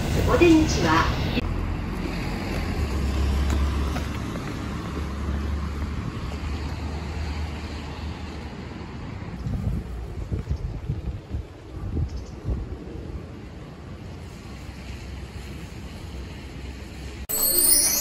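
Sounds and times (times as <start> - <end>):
road traffic rumble: 0.0 - 17.2
wind on microphone: 9.1 - 13.5.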